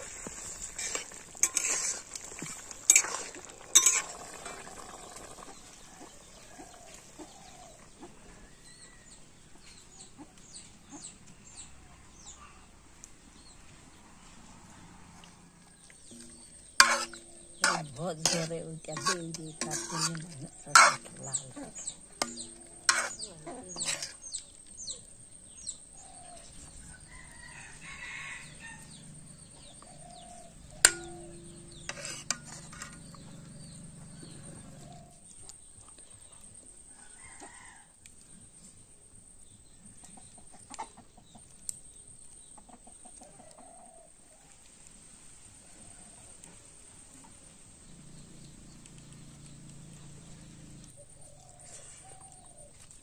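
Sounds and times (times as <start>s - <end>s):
ladle scraping metal pot: 0.0s - 6.3s, 16.0s - 24.5s, 29.8s - 35.0s
chickens clucking: 16.2s - 24.6s
sharp metallic clink: 30.7s - 34.4s.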